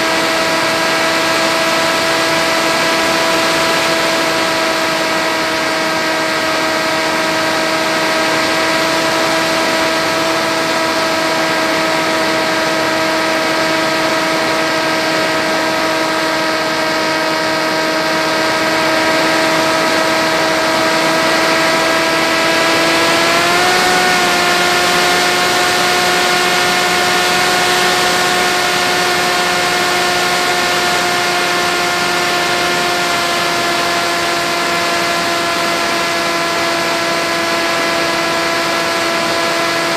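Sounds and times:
electric motor and propeller drone: 0:00.0 - 0:39.9.

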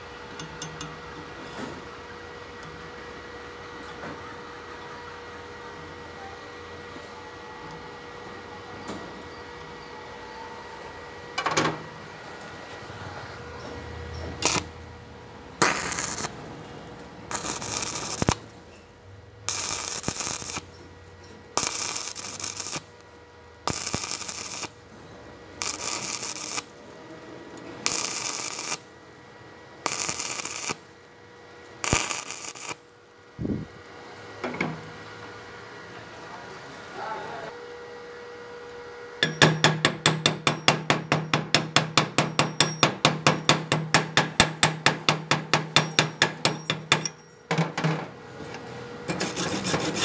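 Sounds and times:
welding arc crackling and hissing: 0:14.4 - 0:14.8, 0:15.6 - 0:16.4, 0:17.3 - 0:18.6, 0:19.5 - 0:20.7, 0:21.6 - 0:23.1, 0:23.7 - 0:24.9, 0:25.5 - 0:27.0, 0:27.8 - 0:28.9, 0:29.8 - 0:31.0, 0:31.8 - 0:32.9.

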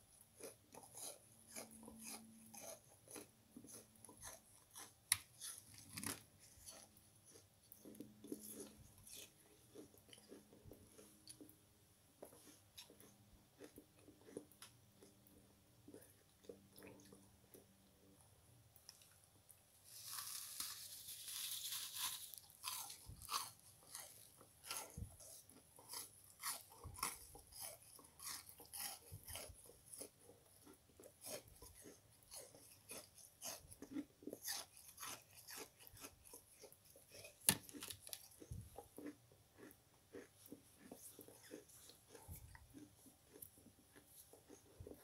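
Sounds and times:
dry sponge crunching: 0:19.8 - 0:30.1.

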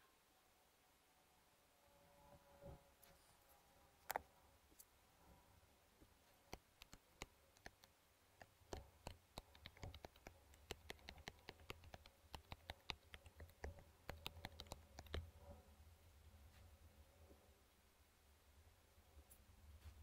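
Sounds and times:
keyboard and touchpad clicks: 0:06.5 - 0:15.3.

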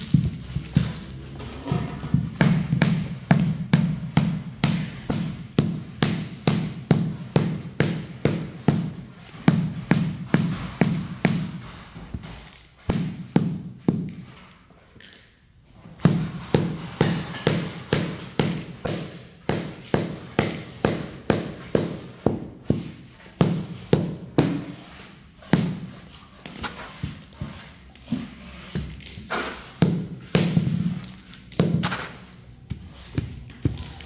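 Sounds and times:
rubber mallet knocking tile: 0:01.9 - 0:11.6.

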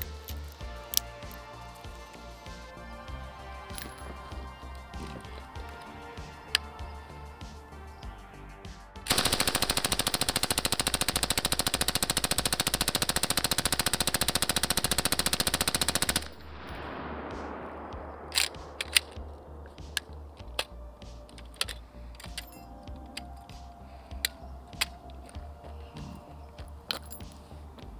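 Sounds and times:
suppressed machine gun burst: 0:09.1 - 0:20.0
rumble: 0:16.0 - 0:23.1
sharp clicks: 0:17.9 - 0:23.3.

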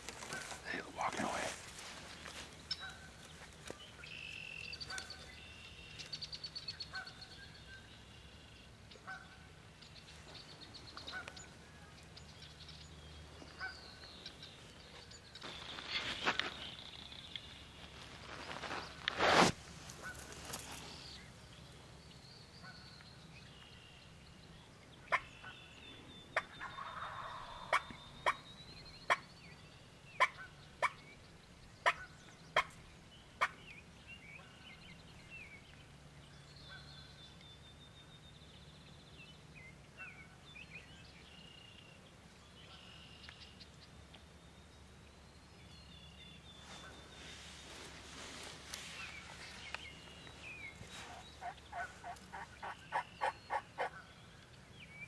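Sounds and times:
wild turkey calling: 0:25.0 - 0:25.6, 0:26.4 - 0:28.5, 0:30.2 - 0:31.1, 0:31.8 - 0:32.8, 0:33.4 - 0:33.7, 0:46.6 - 0:54.2.

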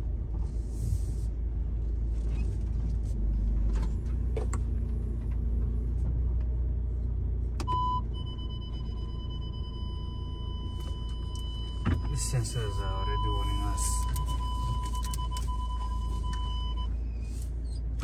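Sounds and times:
vehicle engine rumble: 0:00.0 - 0:18.0
parking sensor beeping: 0:07.6 - 0:17.2.

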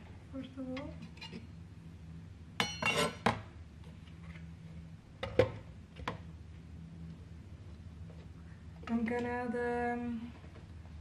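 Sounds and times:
faint low hum: 0:00.0 - 0:11.0
kitchenware clattering: 0:02.6 - 0:03.4.

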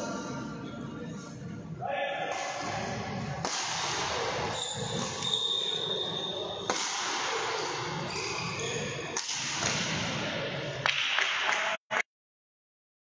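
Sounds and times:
racket hitting shuttlecock: 0:02.3 - 0:05.2, 0:06.6 - 0:08.0, 0:09.1 - 0:10.2.

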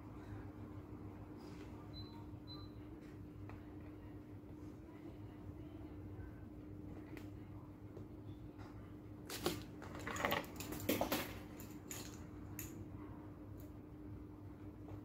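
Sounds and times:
metal screws and washers clinking: 0:11.6 - 0:12.7.

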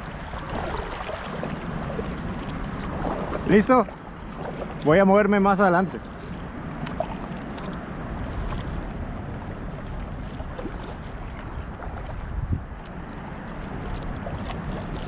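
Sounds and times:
water rushing past kayak: 0:00.0 - 0:15.0
wind on microphone: 0:06.4 - 0:15.0.

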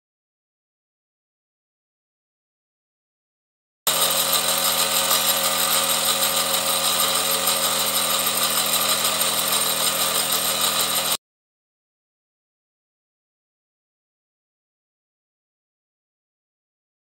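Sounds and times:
toy steam engine beating: 0:03.9 - 0:11.2.

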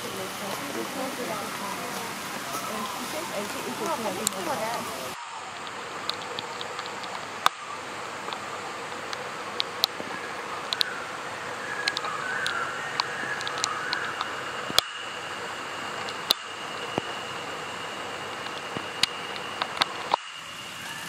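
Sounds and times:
steady rain: 0:00.0 - 0:21.0.

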